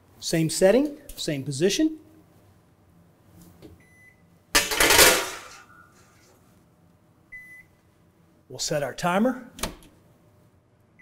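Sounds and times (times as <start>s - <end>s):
oven electronic beeps: 3.8s - 4.3s, 7.3s - 7.8s.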